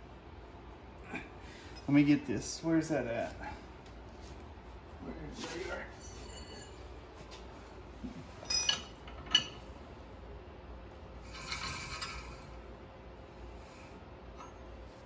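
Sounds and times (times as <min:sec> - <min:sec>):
metal parts clinking: 0:08.4 - 0:09.5
metal rattling scrape: 0:11.3 - 0:12.5.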